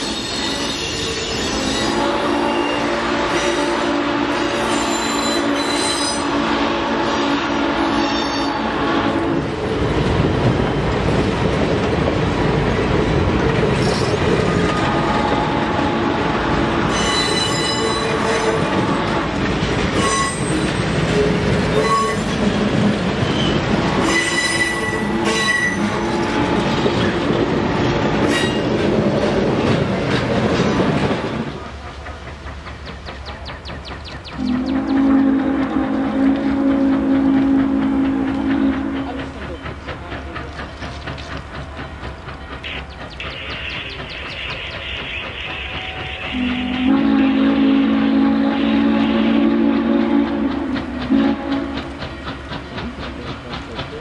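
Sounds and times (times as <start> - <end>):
train wheels squealing: 0.0 - 3.6, 4.4 - 6.3, 7.8 - 8.6, 13.8 - 14.8, 16.9 - 18.5, 19.9 - 22.5, 23.2 - 26.2, 28.2 - 28.7, 41.9 - 46.9
train cars rumbling past: 0.0 - 54.0.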